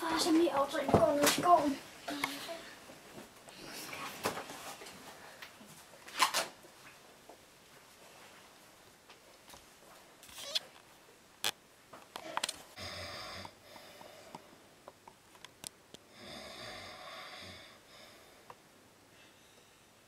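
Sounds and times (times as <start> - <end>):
person snoring: 12.8 - 14.3, 16.1 - 18.2.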